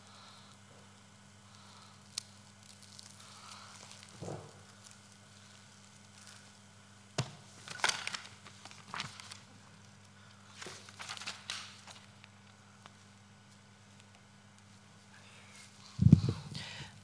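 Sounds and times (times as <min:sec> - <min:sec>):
steady low hum: 0:00.0 - 0:17.0
paper rustling: 0:07.6 - 0:09.5, 0:10.5 - 0:12.1.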